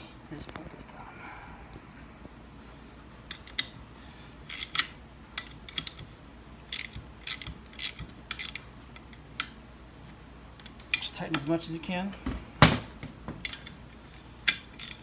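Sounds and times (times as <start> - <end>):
ratcheting wrench clicking: 4.5 - 6.1, 6.7 - 9.6, 14.5 - 15.0.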